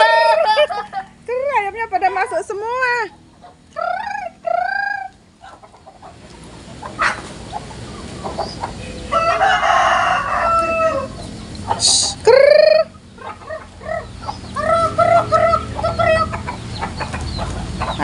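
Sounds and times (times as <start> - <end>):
rooster crowing: 0.0 - 0.8, 9.0 - 11.2.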